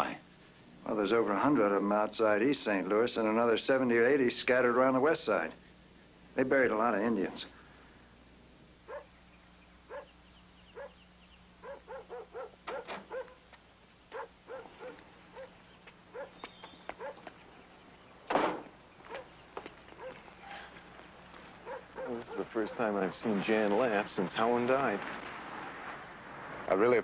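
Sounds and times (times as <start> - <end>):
dog yipping and barking: 8.9 - 9.1, 9.9 - 10.1, 10.7 - 11.0, 11.6 - 13.4, 14.1 - 17.3, 19.1 - 19.3, 20.0 - 20.7, 21.6 - 22.8.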